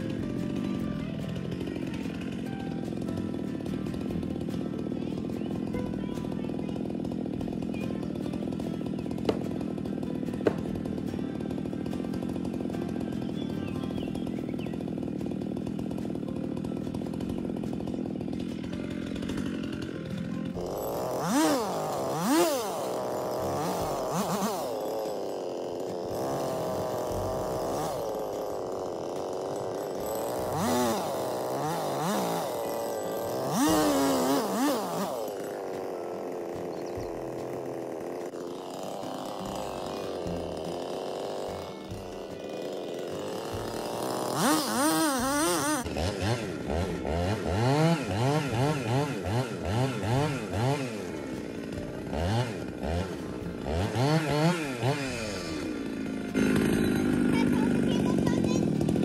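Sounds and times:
chainsaw idling and revving: 0:00.0 - 0:59.0.

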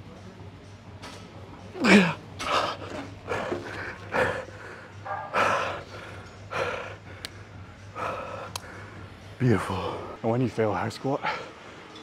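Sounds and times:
man breathing hard and gasping: 0:01.8 - 0:09.2.

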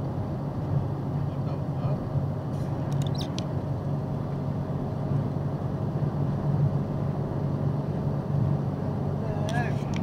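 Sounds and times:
vehicle road and engine noise: 0:00.0 - 0:10.0.

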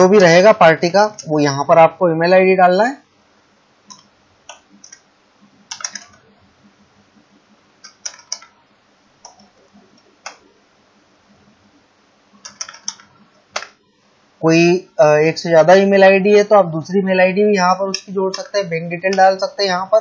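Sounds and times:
keyboard typing clicks: 0:03.9 - 0:05.0, 0:05.7 - 0:06.2, 0:07.8 - 0:08.6, 0:09.2 - 0:10.4, 0:12.4 - 0:13.8.

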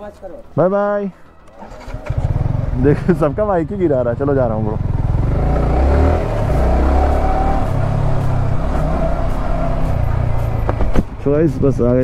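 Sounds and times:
motorcycle engine running: 0:01.6 - 0:11.0.

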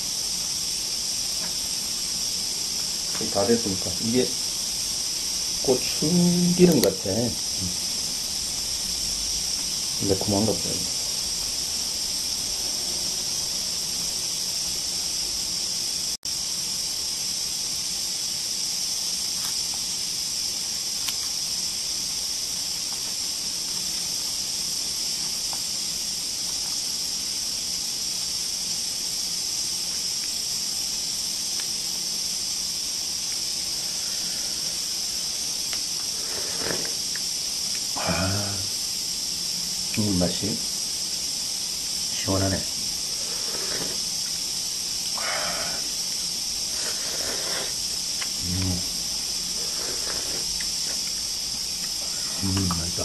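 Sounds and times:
steam hissing: 0:00.0 - 0:53.0.

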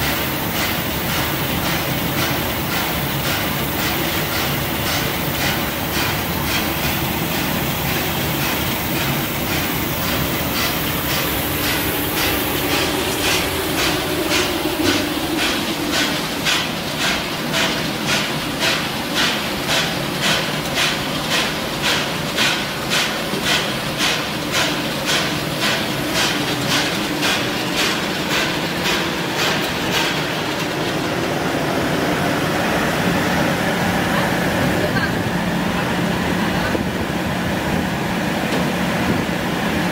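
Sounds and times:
mechanical knocking: 0:00.0 - 0:31.3
machine whirring: 0:00.0 - 0:38.6.

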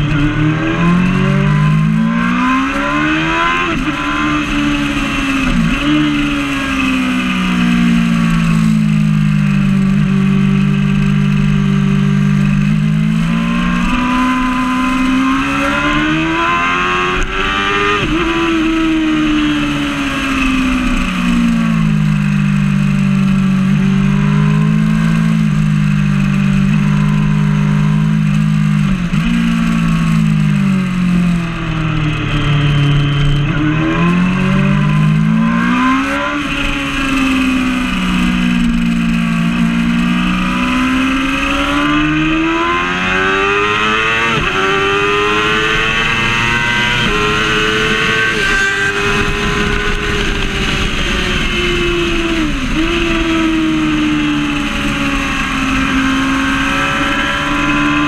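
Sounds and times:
motorcycle engine at high revs: 0:00.0 - 0:58.0
wind rush on microphone: 0:28.2 - 0:58.0.

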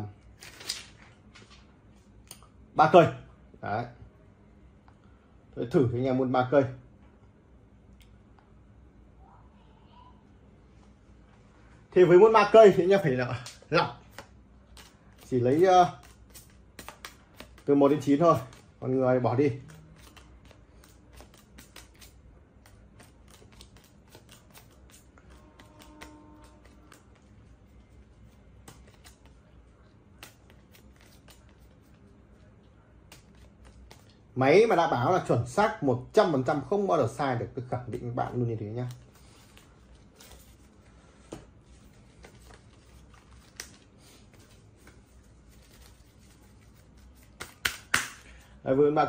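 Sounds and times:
playing cards clicking and flicking: 0:00.4 - 0:02.4, 0:13.4 - 0:32.1, 0:33.0 - 0:34.2, 0:41.3 - 0:48.4.

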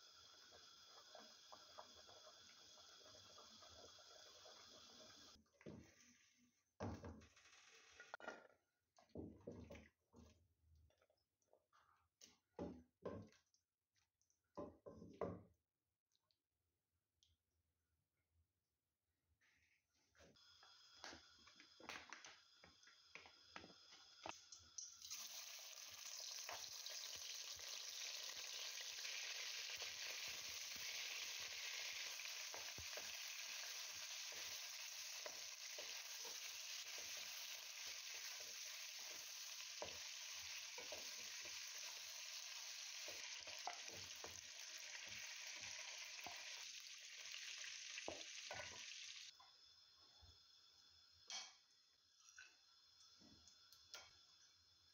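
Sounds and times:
hot oil sizzling: 0:00.0 - 0:05.4, 0:23.8 - 0:49.7.

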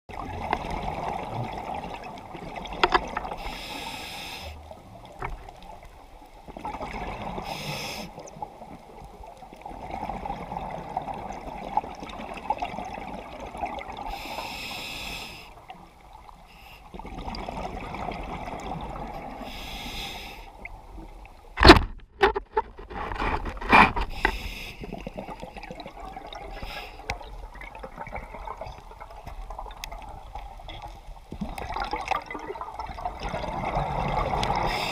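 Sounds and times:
regulator hiss on inhale: 0:03.4 - 0:04.6, 0:07.4 - 0:08.2, 0:14.1 - 0:15.6, 0:16.5 - 0:17.0, 0:19.4 - 0:20.7, 0:24.1 - 0:25.0, 0:26.5 - 0:27.2, 0:34.6 - 0:34.9.

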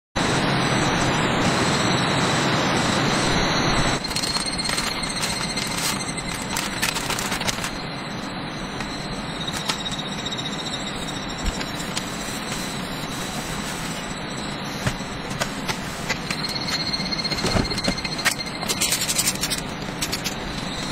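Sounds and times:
tissue packet crinkling: 0:04.0 - 0:07.8
tissue wiping wooden tabletop: 0:11.8 - 0:14.2.

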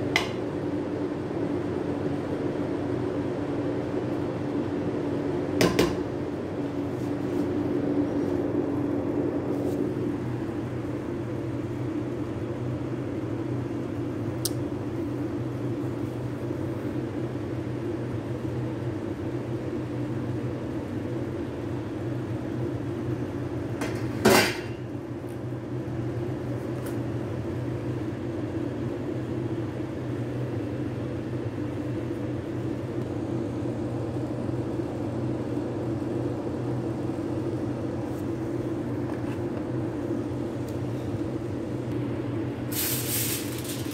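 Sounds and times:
kitchen machine humming: 0:38.4 - 0:43.9.

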